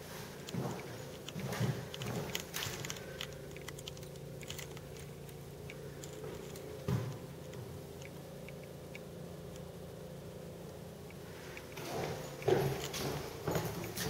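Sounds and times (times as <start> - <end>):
footsteps: 0.0 - 3.2, 6.1 - 7.7, 11.6 - 14.0
steady low hum: 0.0 - 14.0.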